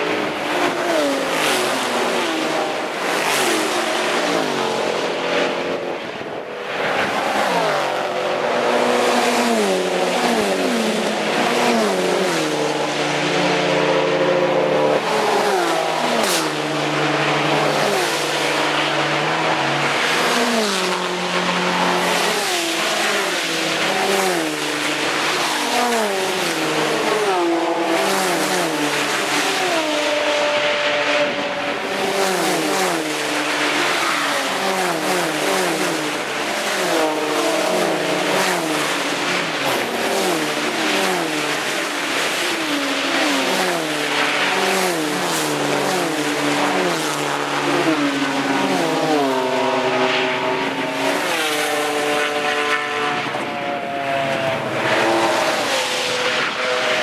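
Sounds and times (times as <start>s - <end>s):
race car engines at full throttle: 0.0s - 57.0s.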